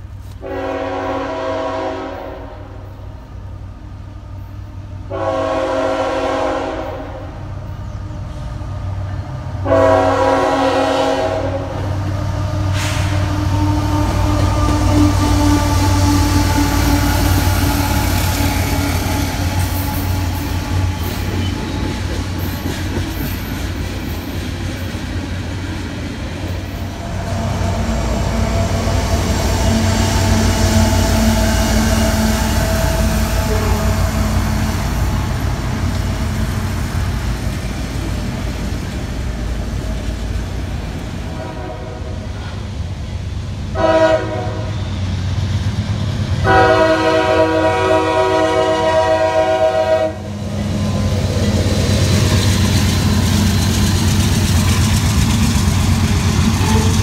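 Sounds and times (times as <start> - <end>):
diesel locomotives running: 0.0 - 57.0
locomotive horn blast: 0.3 - 2.9, 5.0 - 7.4, 9.6 - 21.1, 27.0 - 34.9, 41.3 - 42.5, 43.7 - 44.8, 46.4 - 50.4, 56.6 - 57.0.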